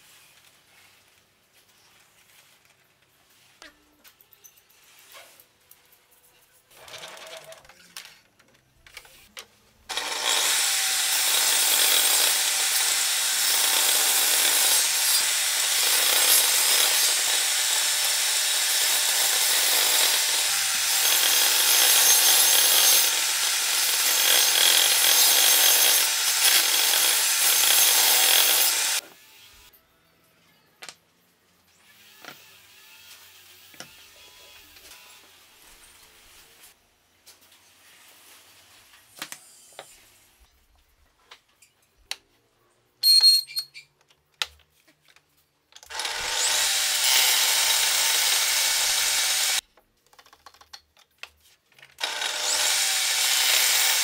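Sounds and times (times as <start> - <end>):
table saw cutting board: 9.9 - 29.2, 45.9 - 49.6, 52.0 - 54.0.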